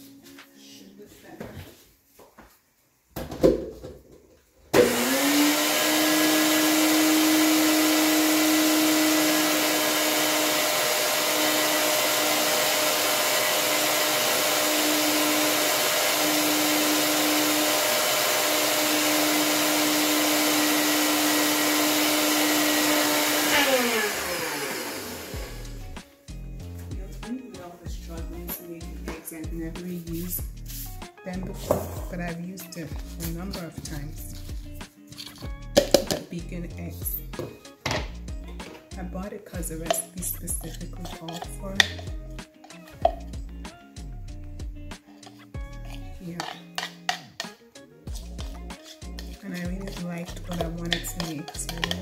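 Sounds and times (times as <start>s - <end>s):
blender motor running: 4.8s - 26.0s, 50.5s - 52.0s.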